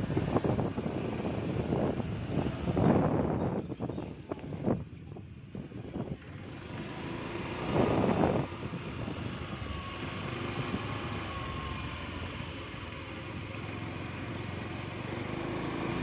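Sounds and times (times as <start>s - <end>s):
short high beeps: 7.6s - 16.0s.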